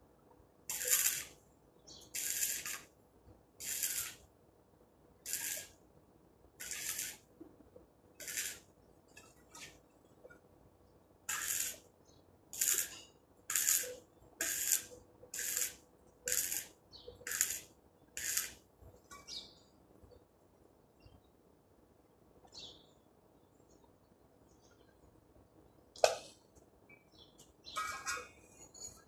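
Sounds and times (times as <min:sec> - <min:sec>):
welding arc hiss: 0:00.7 - 0:01.4, 0:02.0 - 0:02.9, 0:03.6 - 0:04.3, 0:05.2 - 0:05.8, 0:06.6 - 0:07.3, 0:08.2 - 0:08.7, 0:11.3 - 0:11.9, 0:12.5 - 0:18.6.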